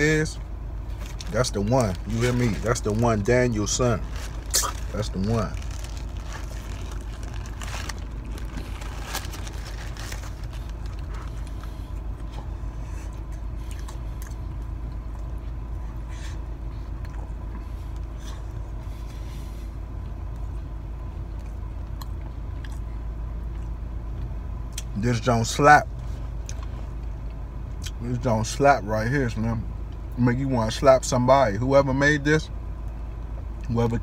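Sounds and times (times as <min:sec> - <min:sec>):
car engine idling: 0:00.0 - 0:34.0
paper wrapper crinkling: 0:01.0 - 0:11.7
chewing: 0:05.6 - 0:15.6, 0:21.3 - 0:23.8.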